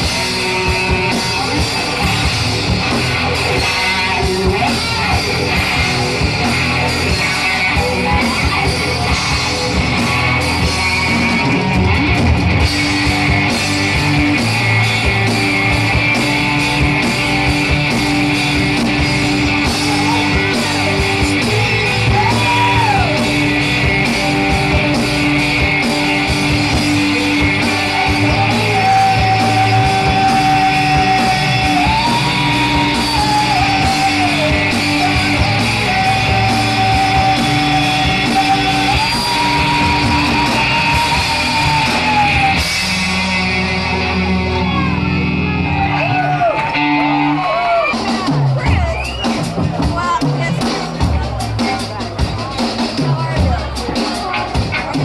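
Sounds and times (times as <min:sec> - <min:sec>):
bass: 0:00.0 - 0:55.0
drums: 0:00.0 - 0:55.0
electric guitars: 0:00.0 - 0:55.0
person singing: 0:13.4 - 0:45.1.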